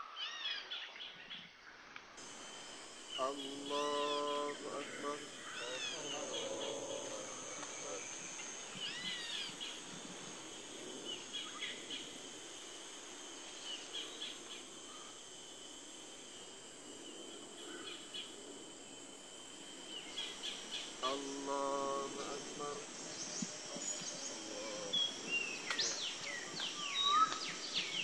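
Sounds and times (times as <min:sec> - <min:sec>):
bird calls: 0:02.2 - 0:12.1, 0:20.0 - 0:28.0
high-pitched insect drone: 0:02.2 - 0:28.0.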